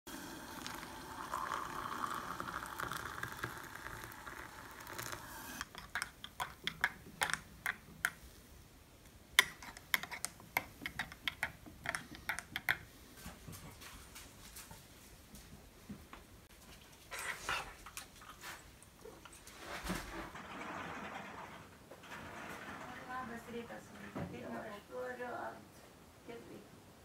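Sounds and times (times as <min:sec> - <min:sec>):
water pouring into a mug: 0:00.1 - 0:06.1.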